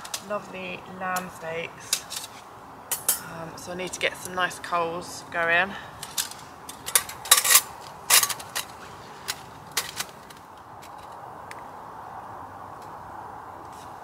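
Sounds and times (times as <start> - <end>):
metal stove clinking and clattering: 2.9 - 3.3, 6.0 - 8.8.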